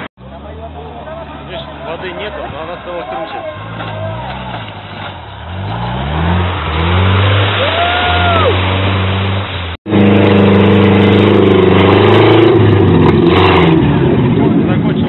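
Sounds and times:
engine running at high revs: 0:08.6 - 0:15.0.

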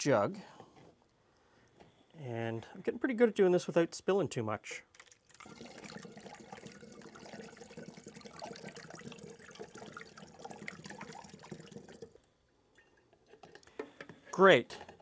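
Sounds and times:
syrup pouring into glass jug: 0:05.0 - 0:13.7.

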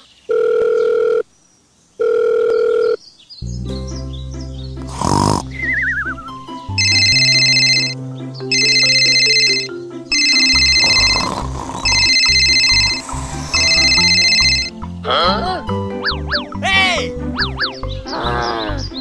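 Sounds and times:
electronic ringing: 0:02.0 - 0:03.0, 0:06.8 - 0:14.8
background music: 0:03.4 - 0:19.0.

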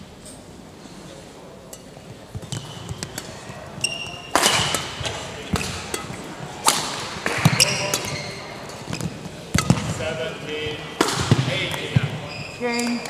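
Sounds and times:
racket hitting shuttlecock: 0:01.7 - 0:10.2, 0:10.8 - 0:12.2
shoes squeaking on court floor: 0:02.3 - 0:13.0.

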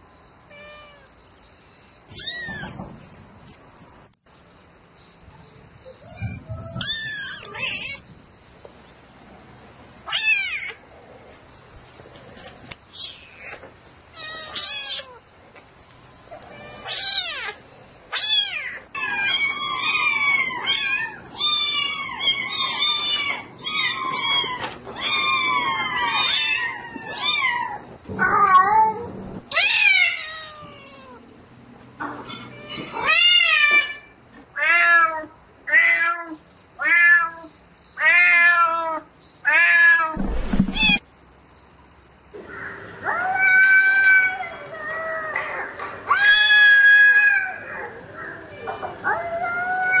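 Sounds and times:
cat meowing: 0:14.2 - 0:15.2, 0:16.4 - 0:31.2.

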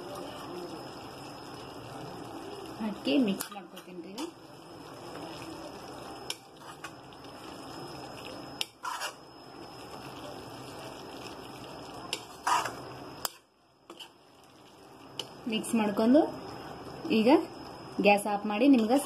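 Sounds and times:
steady low hiss: 0:00.0 - 0:19.0
metal spoon scraping a pan: 0:06.3 - 0:07.0, 0:08.6 - 0:09.2, 0:12.1 - 0:14.2.

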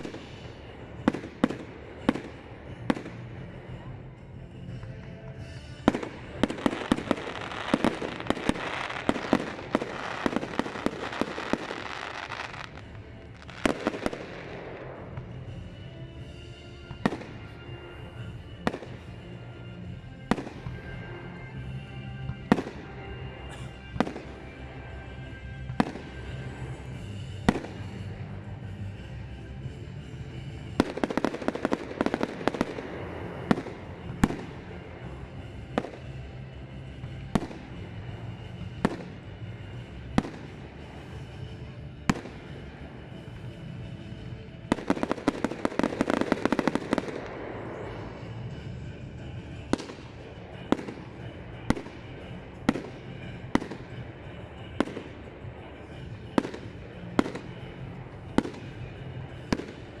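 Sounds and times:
fireworks bursting in bangs: 0:00.0 - 0:03.2, 0:04.9 - 0:15.6, 0:25.7 - 0:28.1, 0:30.7 - 0:34.8, 0:35.4 - 0:36.2, 0:37.0 - 0:42.6, 0:44.7 - 0:48.9, 0:49.5 - 0:55.2, 0:55.8 - 1:00.0
fireworks crackling: 0:00.0 - 1:00.0.

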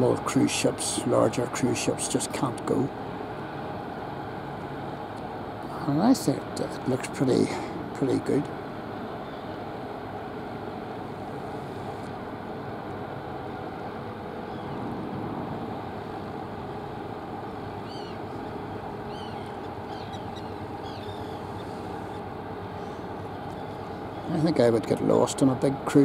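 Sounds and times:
ship engine drone: 0:00.0 - 0:26.0
faint bird chirps: 0:09.2 - 0:09.6, 0:14.4 - 0:14.8, 0:17.8 - 0:18.4, 0:19.0 - 0:22.2.

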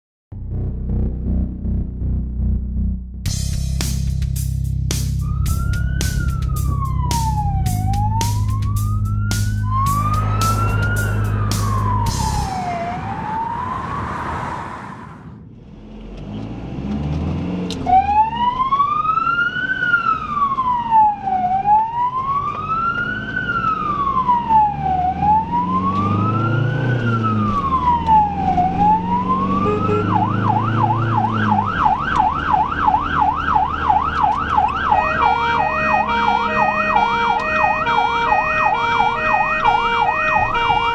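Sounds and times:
music with low bass: 0:00.3 - 0:12.6
ambulance siren: 0:05.2 - 0:15.4, 0:17.8 - 0:40.9.

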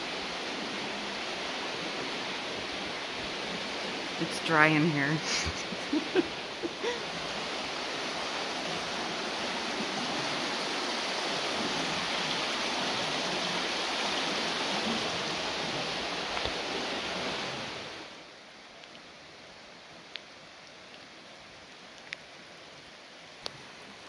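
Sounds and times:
whitewater rushing in creek: 0:00.0 - 0:24.0.

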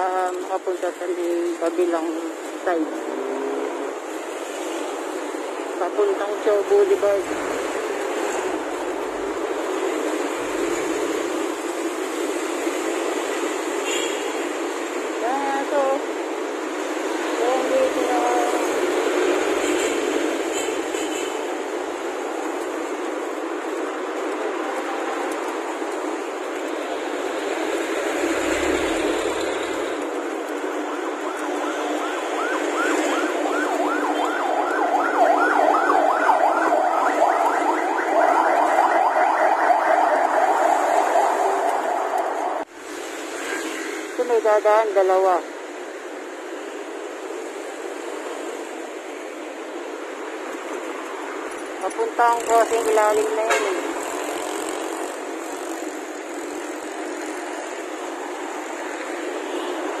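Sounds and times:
road traffic: 0:00.0 - 1:00.0
vehicle siren yelping: 0:30.8 - 0:42.7.

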